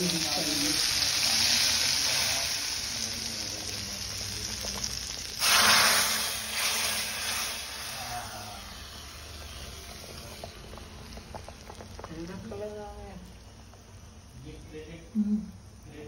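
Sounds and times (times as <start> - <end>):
hot oil sizzling: 0.0 - 16.0.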